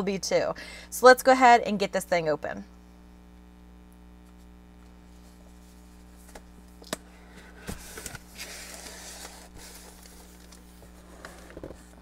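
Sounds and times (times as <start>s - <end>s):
faint steady hum: 0.0s - 12.0s
cardboard scraping and rustling: 7.4s - 12.0s.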